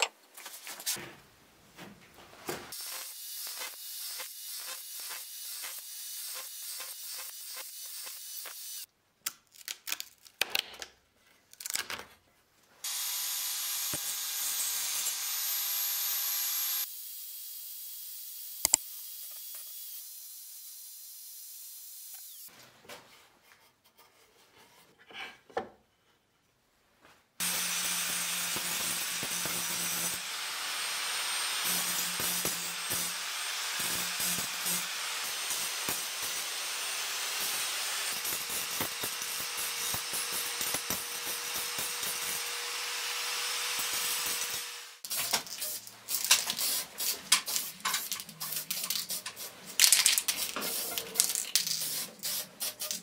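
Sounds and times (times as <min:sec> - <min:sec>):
angle grinder running: 0:27.4 - 0:45.0
mitre saw cutting wood: 0:27.4 - 0:45.0.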